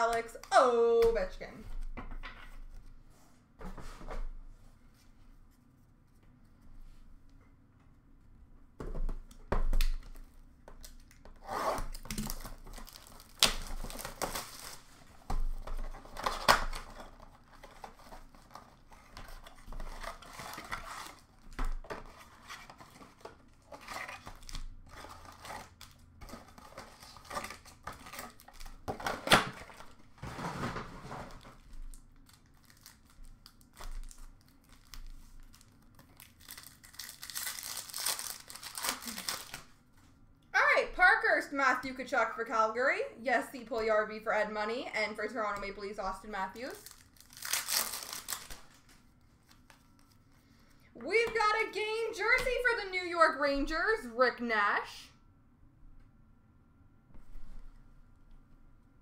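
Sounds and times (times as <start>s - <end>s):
foil packs tearing and crinkling: 11.8s - 30.1s, 30.7s - 39.7s, 46.6s - 49.6s.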